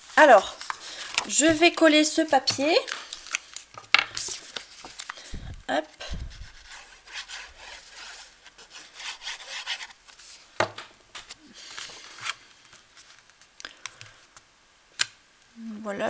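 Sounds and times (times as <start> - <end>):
paper rustling: 0.0 - 14.4
paper rubbed on card: 6.0 - 10.4.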